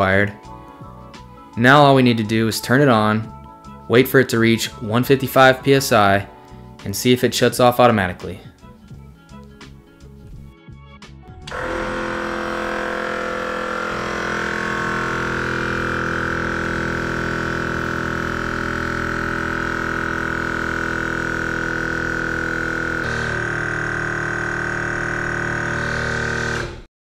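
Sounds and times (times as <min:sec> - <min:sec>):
air compressor running: 0:11.4 - 0:26.9.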